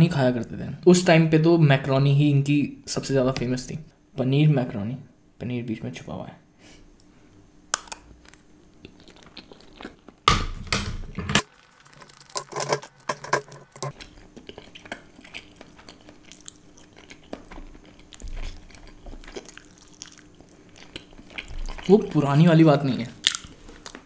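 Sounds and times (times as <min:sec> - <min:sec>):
close chewing with wet smacks: 0:13.9 - 0:22.0.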